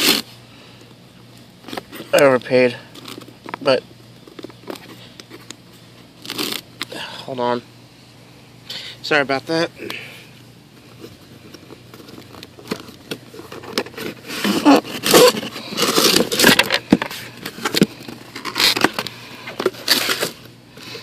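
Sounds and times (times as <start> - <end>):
cardboard box being torn open: 12.1 - 19.0.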